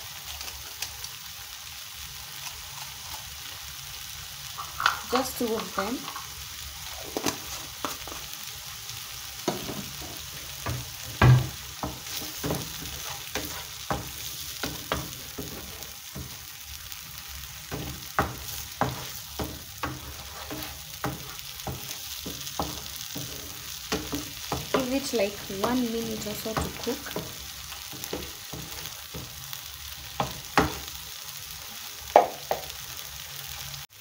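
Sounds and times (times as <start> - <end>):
sauce sizzling in a frying pan: 0.0 - 34.0
wooden spatula scraping a pan: 9.4 - 16.5, 17.6 - 30.9
spatula knocking against pan: 17.7 - 23.3.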